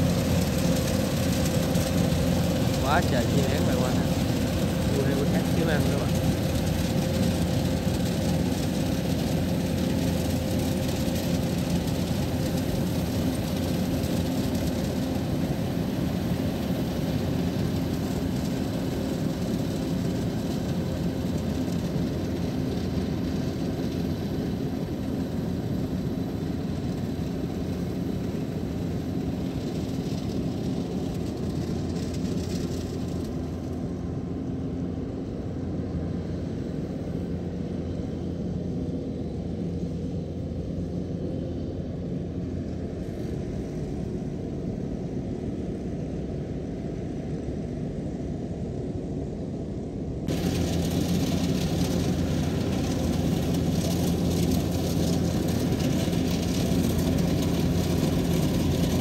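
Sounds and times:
combine harvester running: 0.0 - 59.0.

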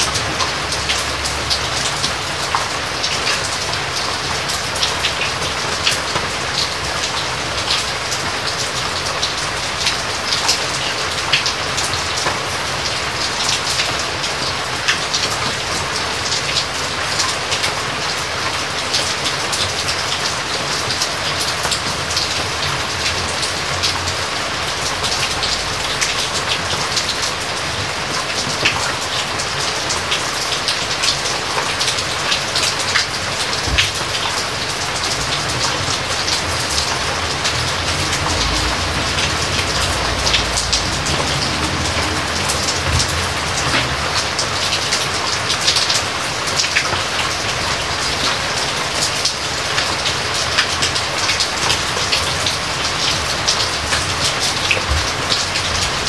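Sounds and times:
raindrops ticking: 0.0 - 56.0
steady rain falling: 0.0 - 56.0
low rumble: 35.9 - 44.4.

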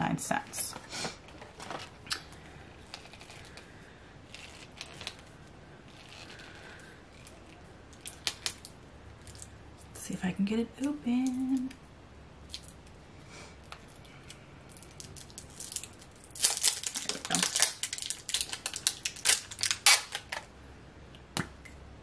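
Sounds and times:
plastic clicking and crinkling: 14.8 - 20.5.

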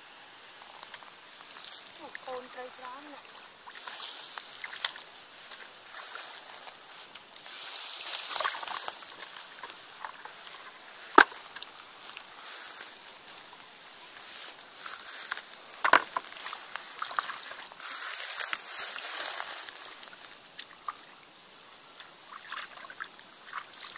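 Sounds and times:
wet squelches: 0.6 - 15.6, 21.9 - 23.9
muddy water sloshing: 1.4 - 21.1, 22.0 - 23.9.

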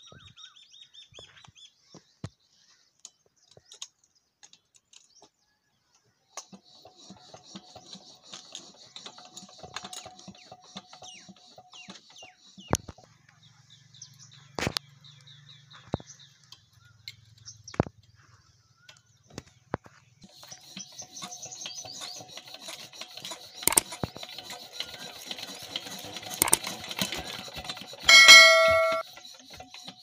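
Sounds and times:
metal knocks and clicks: 23.7 - 23.9, 26.4 - 26.6, 28.1 - 29.0
birds chirping: 28.1 - 29.0.

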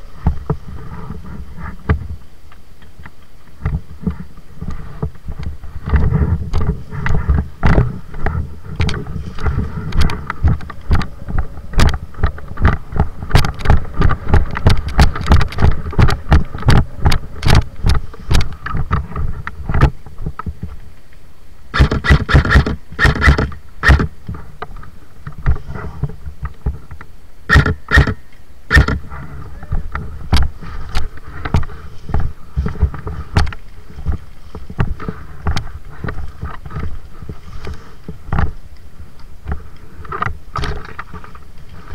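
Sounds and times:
sharp knocks and clicks: 4.7 - 20.6, 26.4 - 29.0.

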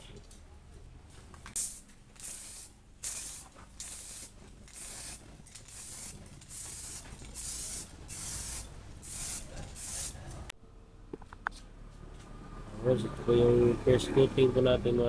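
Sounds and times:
spray paint can hissing: 1.5 - 10.5.

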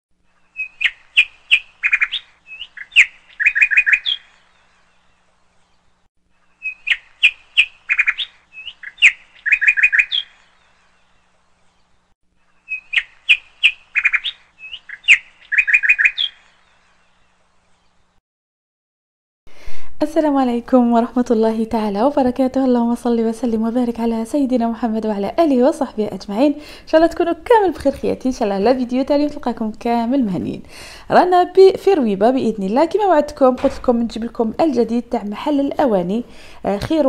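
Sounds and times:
songbird chirping and trilling: 0.3 - 18.2.

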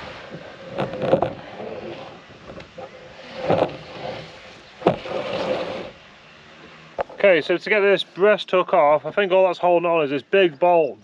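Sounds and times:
wind hiss on microphone: 0.0 - 8.3
wooden planks knocking on hull: 4.8 - 5.9.

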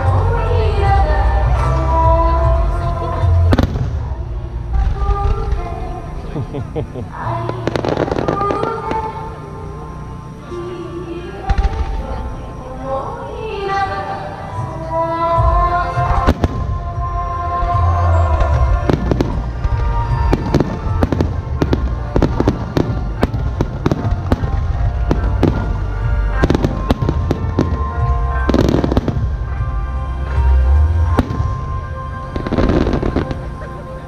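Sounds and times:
low rumble: 0.0 - 10.4, 15.4 - 34.0
fireworks crackling: 3.0 - 14.2, 15.6 - 34.0
fireworks bangs: 3.5 - 10.2, 11.5 - 12.4, 16.0 - 30.5, 31.1 - 33.8.

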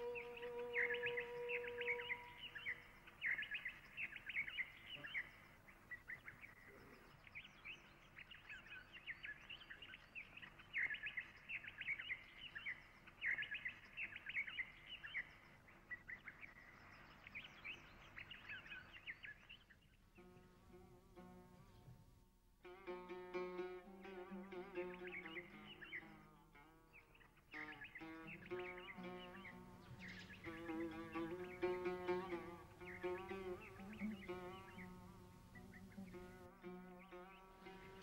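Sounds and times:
plucked-string music: 0.0 - 2.8, 20.2 - 38.0
small birds chirping: 0.0 - 22.0, 22.9 - 38.0.

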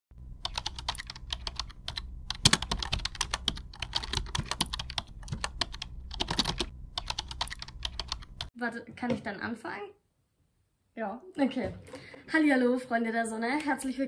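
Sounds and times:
low steady hum: 0.2 - 8.5
keyboard typing: 0.4 - 8.5.

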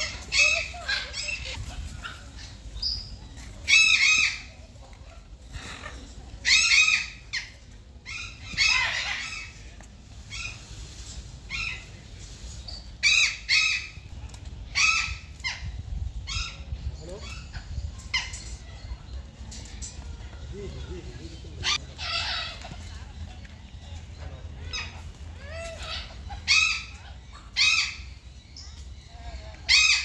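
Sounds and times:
peafowl harsh calls: 21.6 - 22.9, 24.7 - 28.3, 29.6 - 30.0.

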